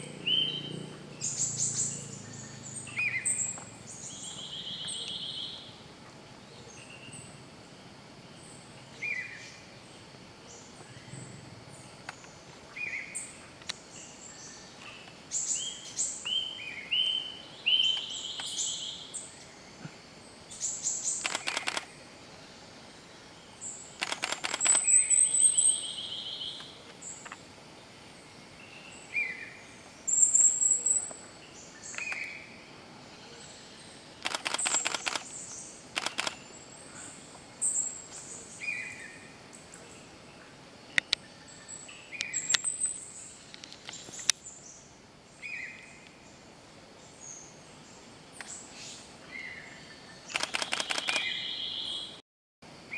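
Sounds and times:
birds chirping and whistling: 0.0 - 5.6
bird rattling calls: 21.0 - 21.9, 24.0 - 25.3, 34.2 - 35.4, 36.0 - 36.5, 50.3 - 51.4.

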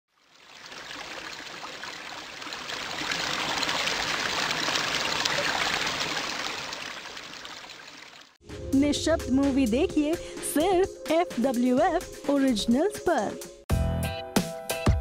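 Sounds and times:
trickling water: 0.1 - 8.4.

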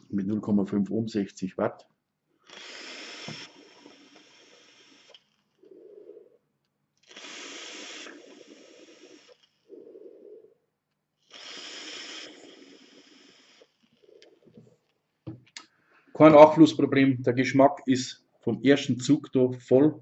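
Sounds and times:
man exhaling vapor: 2.4 - 5.2, 7.0 - 9.4, 11.3 - 13.8
soft breathing: 15.6 - 16.2.

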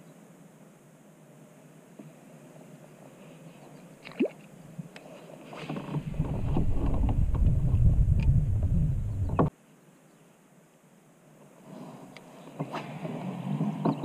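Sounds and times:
wind buffeting microphone: 5.8 - 9.5.

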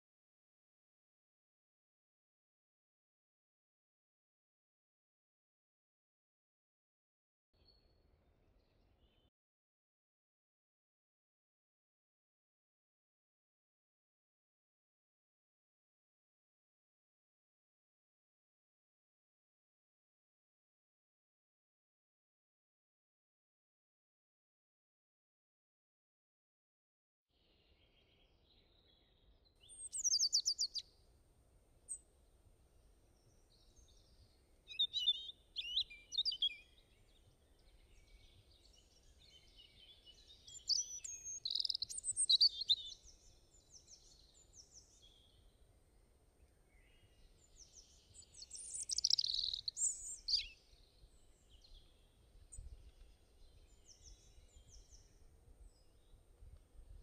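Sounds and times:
songbirds chirping and trilling: 27.4 - 57.0.

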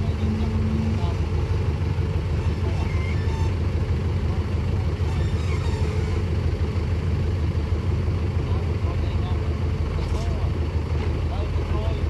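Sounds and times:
diesel engines running: 0.0 - 12.0.

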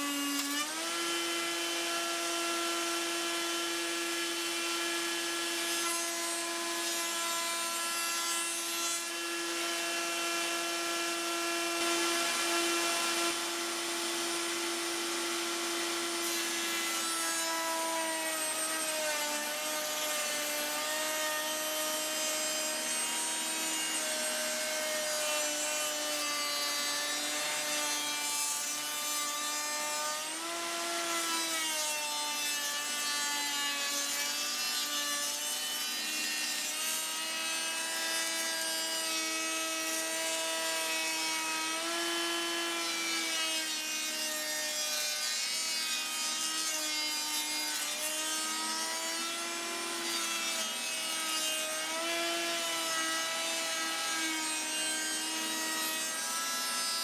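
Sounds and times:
router cutting wood: 0.0 - 57.0
shop vacuum running: 9.4 - 16.8.

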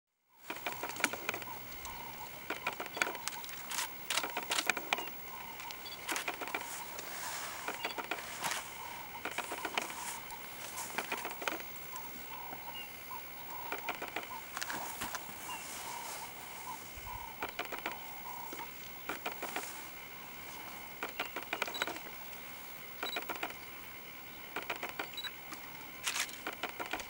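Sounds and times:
twigs and leaves crackling: 0.4 - 12.6, 13.5 - 22.4.

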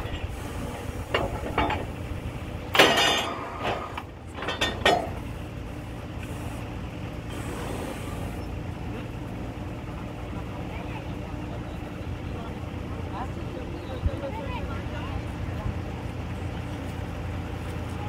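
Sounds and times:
drilling rig low drone: 0.0 - 18.0
sharp metal clanks and knocks: 1.1 - 2.0, 2.7 - 5.2.

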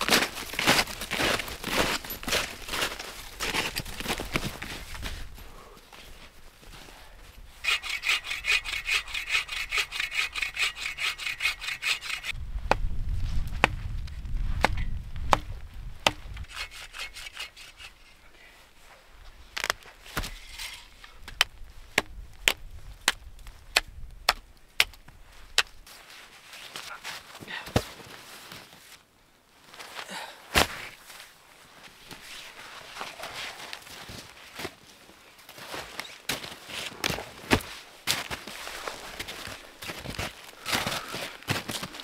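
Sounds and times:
hand saw cutting branch: 7.6 - 12.3, 16.1 - 18.1.

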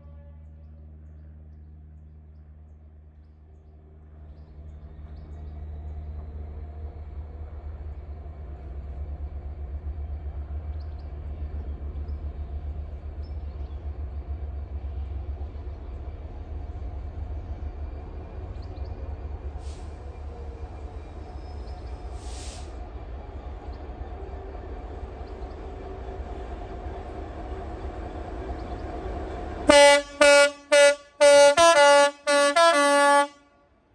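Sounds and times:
diesel locomotive engine drone: 0.0 - 33.9
short hisses: 22.1 - 22.8.

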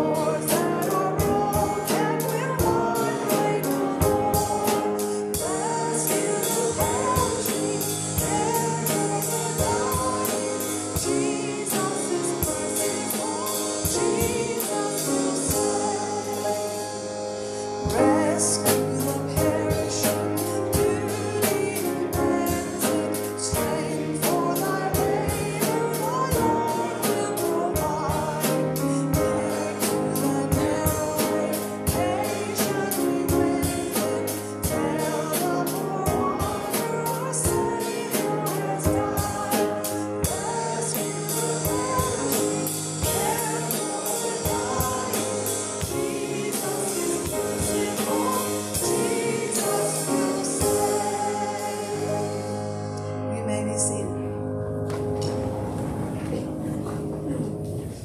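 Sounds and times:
woman singing a hymn: 0.0 - 54.4
instrumental accompaniment: 0.0 - 58.0
steady beat: 20.8 - 52.6.

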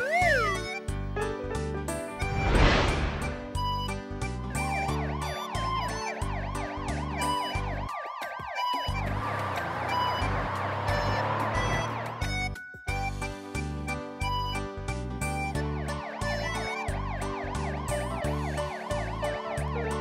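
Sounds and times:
cartoon ambulance siren: 0.0 - 0.8, 4.6 - 12.6, 15.6 - 20.0
children's music with bass line: 0.0 - 2.4, 3.2 - 20.0
vehicle rushing away: 2.2 - 3.8, 9.0 - 12.5.

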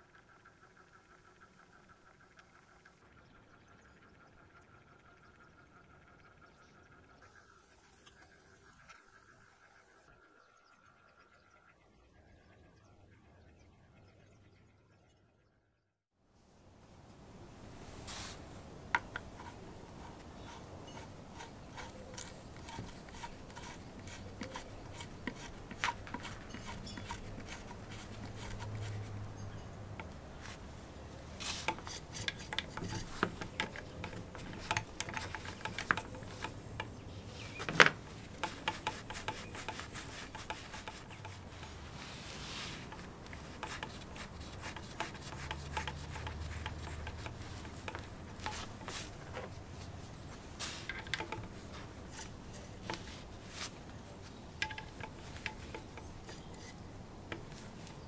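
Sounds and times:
glove rubbing on metal: 19.2 - 29.2, 31.4 - 36.5, 38.3 - 53.8.

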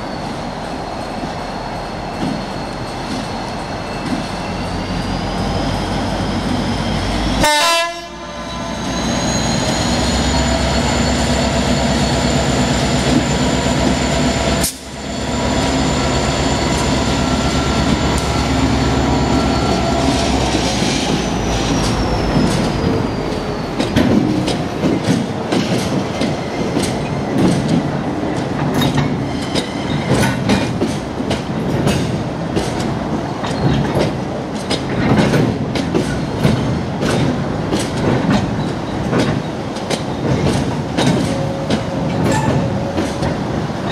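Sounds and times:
diesel locomotive engine: 0.0 - 43.9
wagons clattering over rail joints: 17.8 - 43.9.

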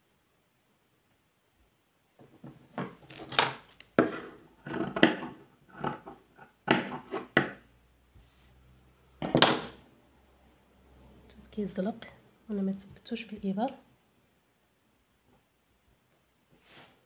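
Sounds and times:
scissors cutting fabric: 4.1 - 7.4.

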